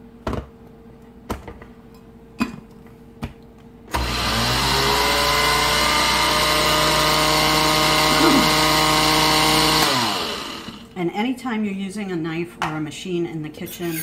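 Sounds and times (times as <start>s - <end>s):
blender motor grinding: 3.9s - 10.9s.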